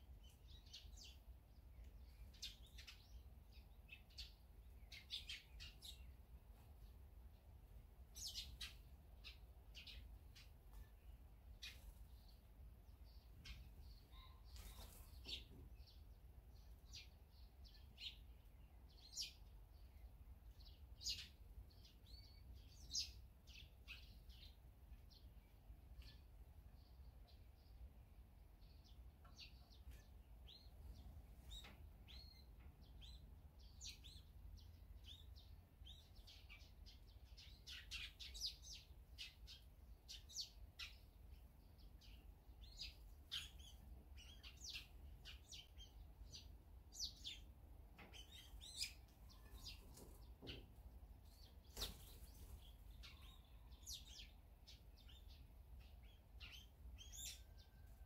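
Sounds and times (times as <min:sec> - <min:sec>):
small songbirds chirping: 0:00.0 - 0:58.0.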